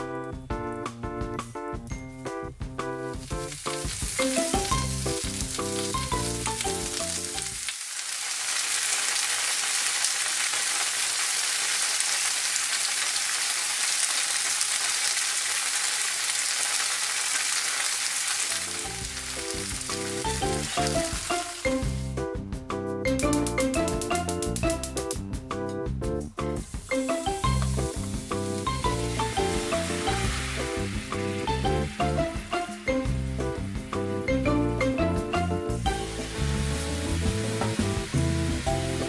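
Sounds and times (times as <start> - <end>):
background music: 0.0 - 7.6, 18.6 - 39.0
tofu sizzling in oil: 3.1 - 22.2, 26.9 - 34.5, 35.4 - 39.0.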